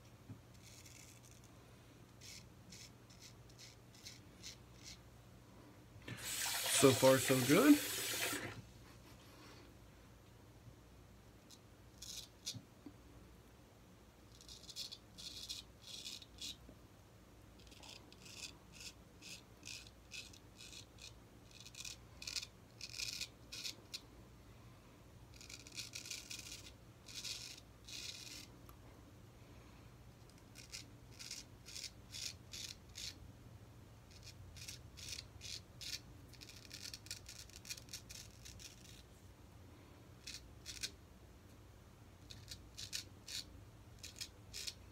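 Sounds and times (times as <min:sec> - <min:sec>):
razor scraping stubble: 0:02.2 - 0:05.0, 0:25.3 - 0:28.5, 0:34.1 - 0:39.0, 0:42.3 - 0:44.8.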